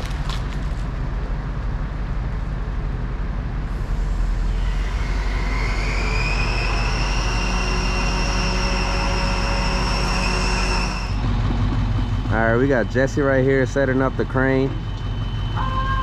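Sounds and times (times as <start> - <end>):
truck engine running: 0.0 - 6.2, 6.8 - 16.0
low drone: 0.0 - 16.0
high whine: 3.5 - 16.0.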